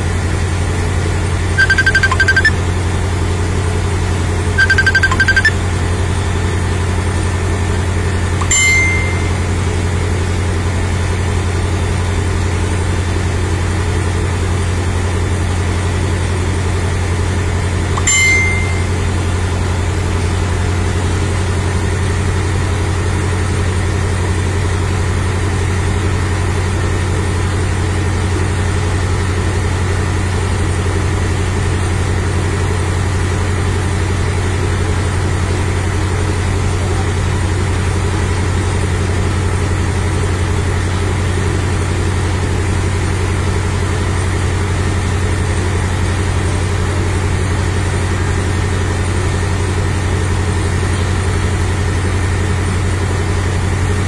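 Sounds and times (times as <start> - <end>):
diesel engine idling: 0.0 - 54.0
short high beeps: 1.6 - 2.6, 4.6 - 5.6, 8.4 - 9.6, 18.0 - 19.1.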